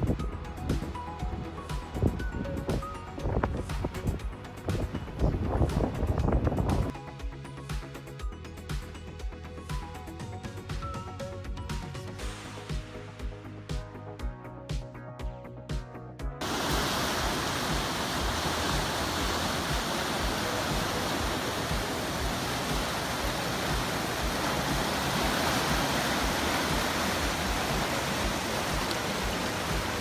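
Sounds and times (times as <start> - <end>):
background music with steady beat: 0.0 - 30.0
river rapids rushing: 16.4 - 30.0.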